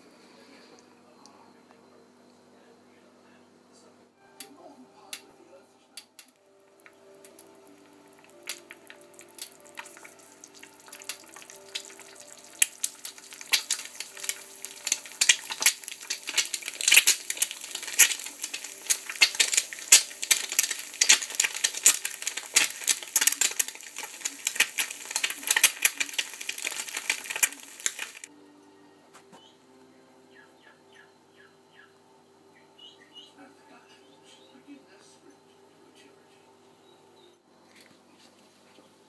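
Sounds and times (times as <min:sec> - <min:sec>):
egg sizzling in a pan: 0:06.4 - 0:28.3.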